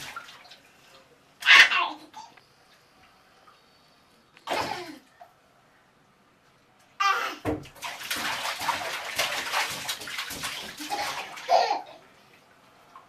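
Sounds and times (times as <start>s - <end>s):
child splashing bathwater: 0.0s - 2.4s, 4.4s - 5.2s, 7.0s - 12.1s
child voice sounds: 1.4s - 2.4s.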